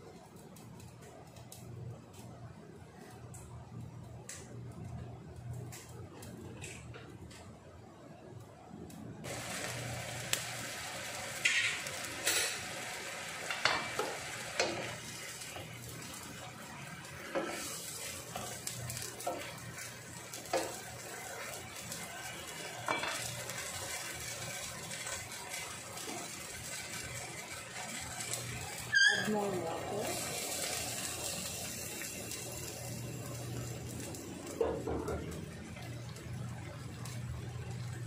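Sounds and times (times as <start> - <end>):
simmering hiss: 9.3 - 38.0.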